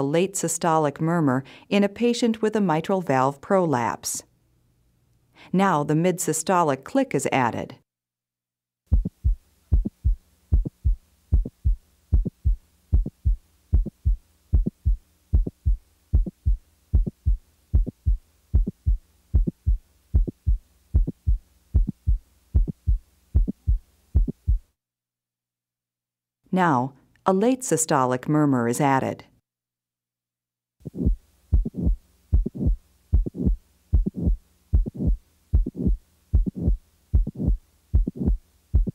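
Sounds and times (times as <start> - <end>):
faint low hum: 8.9 - 24.7
heartbeat with click: 8.9 - 24.7, 30.8 - 38.9.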